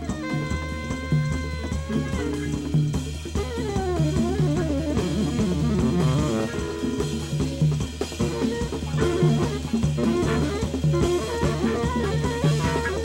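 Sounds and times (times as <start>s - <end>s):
conga percussion: 0.0s - 13.0s
drum kit: 0.0s - 13.0s
tenor saxophone solo: 0.0s - 13.0s
electric bass line: 2.0s - 8.0s.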